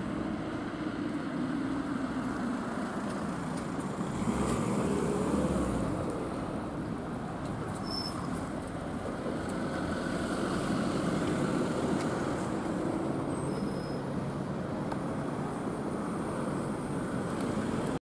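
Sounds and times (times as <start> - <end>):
bus driving past: 0.0 - 18.0.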